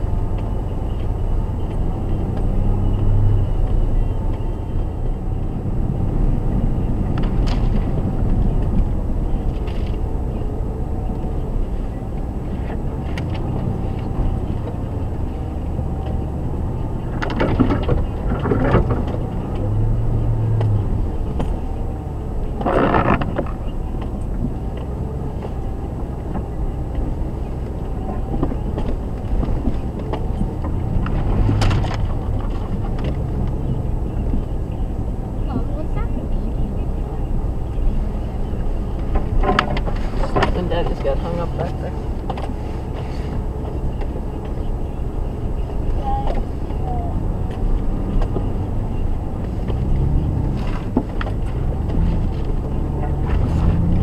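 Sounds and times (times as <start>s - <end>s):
branches scraping vehicle: 0.0s - 54.0s
engine and drivetrain rumble: 0.0s - 54.0s.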